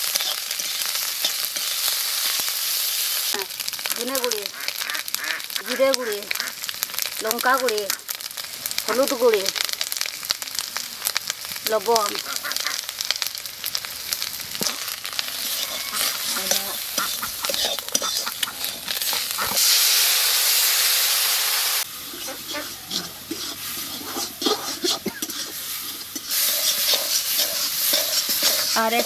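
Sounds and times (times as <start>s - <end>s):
metal spatula scraping wok: 0.0s - 3.1s, 13.2s - 19.8s, 21.7s - 29.0s
fish sizzling in oil: 0.0s - 29.0s
water hissing in hot wok: 0.0s - 29.0s.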